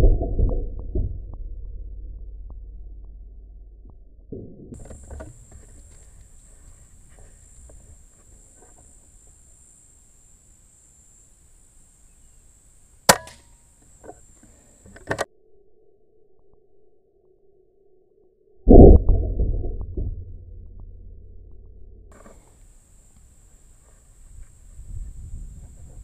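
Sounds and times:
air rifle shot: 0:13.1 - 0:13.5.

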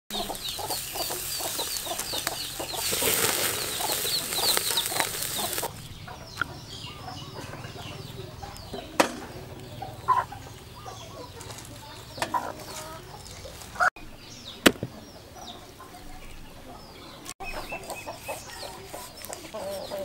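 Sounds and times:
meat sizzling on grill: 0:00.1 - 0:05.8
sharp knock: 0:14.6 - 0:15.0.

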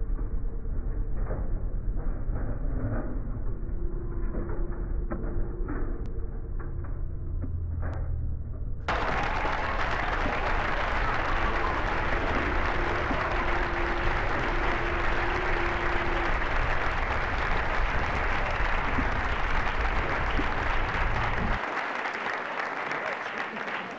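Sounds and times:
low rumble: 0:00.0 - 0:21.6
bicycle tyres and freewheels whirring: 0:09.0 - 0:21.6
steady tone: 0:10.6 - 0:21.6.

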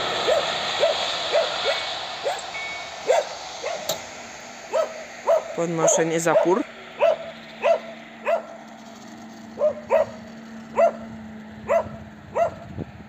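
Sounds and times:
barrier motor humming: 0:00.0 - 0:13.0
dog barking: 0:03.0 - 0:03.9, 0:04.7 - 0:08.6, 0:09.6 - 0:12.7.

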